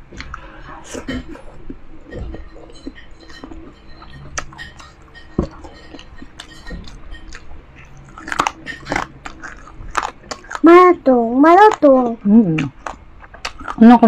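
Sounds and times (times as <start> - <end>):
person chewing crunchy food: 0.0 - 10.9, 11.5 - 14.0.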